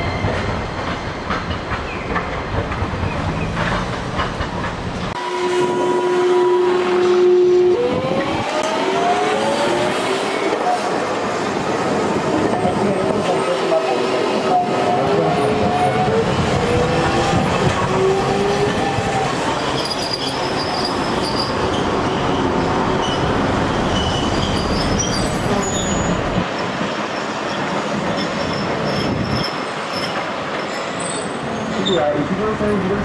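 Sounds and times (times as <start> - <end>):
streetcar wheels rumbling: 0.0 - 33.0
wheel squeals: 18.8 - 26.2, 27.5 - 32.2.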